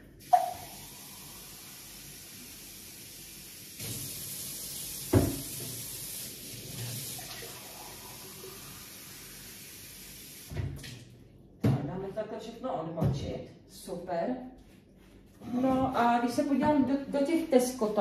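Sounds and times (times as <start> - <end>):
tap water running into sink: 0.2 - 11.1.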